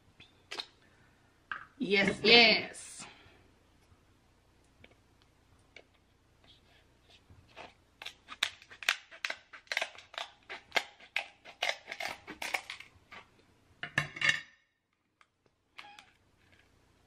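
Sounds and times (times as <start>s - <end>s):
crab shell cracking: 8.0s - 12.9s.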